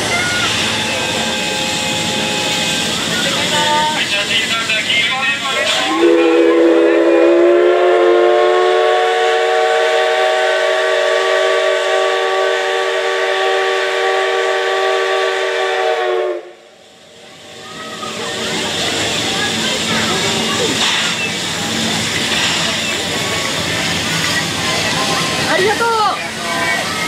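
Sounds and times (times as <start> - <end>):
steam locomotive whistle: 0.1 - 2.8, 5.7 - 16.7.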